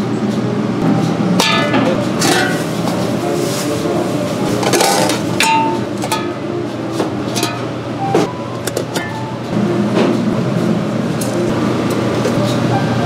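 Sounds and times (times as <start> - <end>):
metal pan lids clanking: 1.4 - 2.7, 4.6 - 6.4, 7.3 - 7.7.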